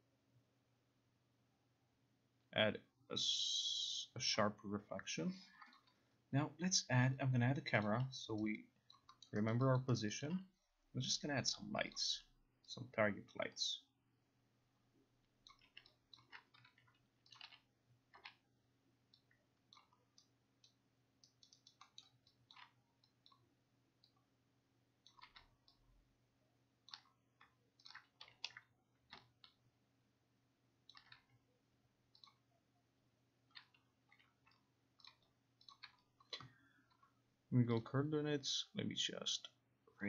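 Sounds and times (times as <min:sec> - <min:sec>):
computer mouse clicks: 0:07.5 - 0:09.5, 0:15.4 - 0:18.4, 0:19.1 - 0:24.3, 0:25.0 - 0:25.9, 0:26.8 - 0:29.6, 0:30.8 - 0:31.4, 0:32.1 - 0:32.5, 0:33.5 - 0:37.2.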